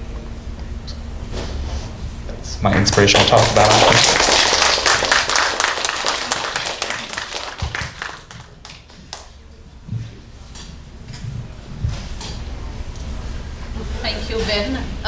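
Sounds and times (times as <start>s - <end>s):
audience applause: 2.7s - 9.4s.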